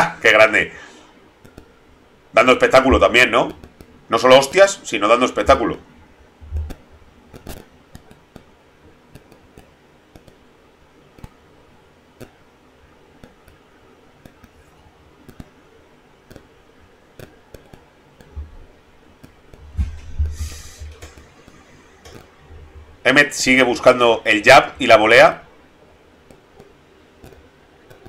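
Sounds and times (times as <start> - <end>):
faint small clicks and ticks: 1.4 - 1.8, 6.5 - 11.4, 12.2 - 12.4, 13.2 - 15.6, 16.2 - 18.6, 19.2 - 19.6, 20.9 - 22.4, 26.2 - 28.0
low thumps: 6.4 - 7.6, 19.5 - 23.0
short rush of hiss: 20.2 - 21.1.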